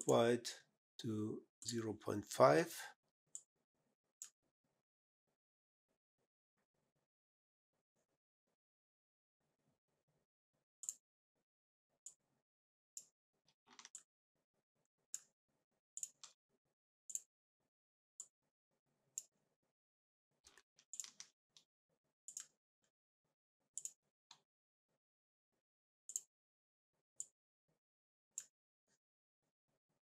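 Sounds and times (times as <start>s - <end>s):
computer mouse clicks: 20.5s - 21.3s.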